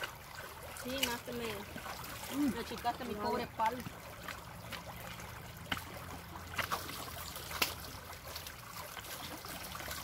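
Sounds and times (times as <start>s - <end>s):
creek water trickling and splashing: 0.0s - 10.0s
sharp splashes: 0.0s - 10.0s.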